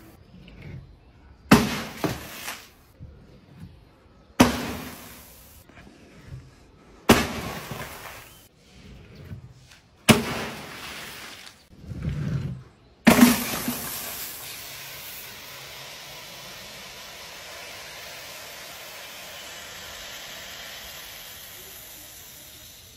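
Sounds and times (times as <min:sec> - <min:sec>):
soda fizzing hiss: 0:13.1 - 0:22.9.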